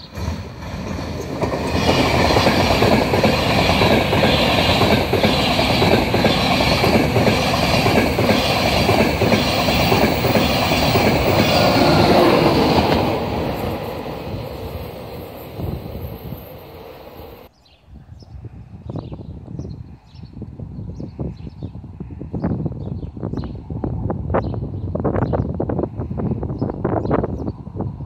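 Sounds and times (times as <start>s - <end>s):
train passing at speed: 0.0s - 17.5s.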